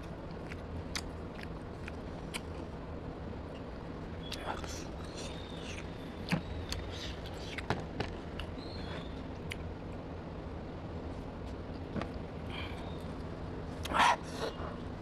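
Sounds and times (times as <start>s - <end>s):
low background hum: 0.0s - 15.0s
chewing: 0.2s - 2.6s.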